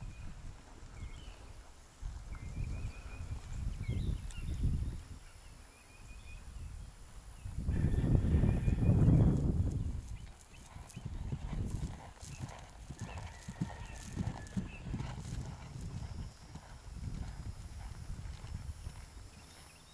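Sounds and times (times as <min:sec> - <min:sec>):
horse hooves thudding on grass: 0:08.4 - 0:19.9.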